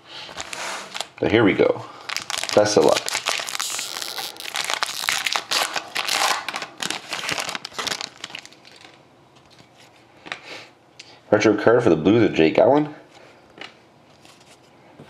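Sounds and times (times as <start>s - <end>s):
foil wrapper crinkling: 0.3s - 9.7s
cards being handled: 2.2s - 10.0s.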